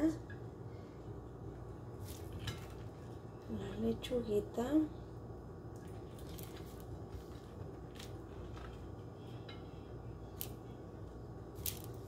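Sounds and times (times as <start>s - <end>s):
steady low hum: 0.0s - 12.0s
crackles of fried tortillas handled: 1.5s - 3.8s, 5.7s - 12.0s.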